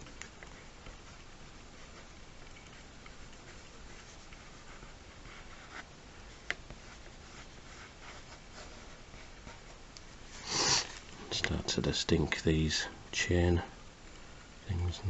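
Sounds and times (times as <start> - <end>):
pen scratching on paper: 0.0 - 9.8.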